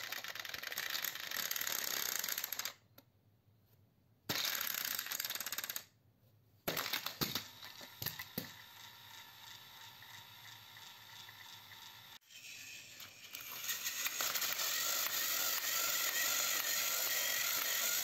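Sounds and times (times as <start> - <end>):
toy train motors whirring: 0.0 - 2.8, 4.3 - 5.9, 6.7 - 18.0
plastic toy trains clattering: 12.8 - 18.0.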